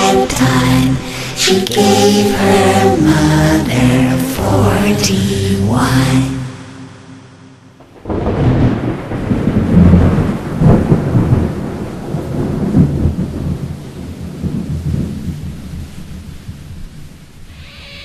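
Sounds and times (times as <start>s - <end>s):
rain: 0.0s - 4.4s, 7.8s - 18.0s
thunder cracking and rumbling: 7.8s - 17.3s.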